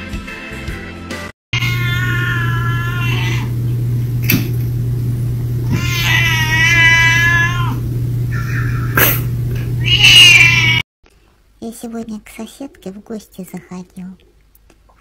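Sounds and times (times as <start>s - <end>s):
cat meowing: 1.6s - 3.6s, 5.6s - 9.1s, 9.8s - 10.8s
low hum: 1.6s - 6.6s, 7.2s - 9.9s.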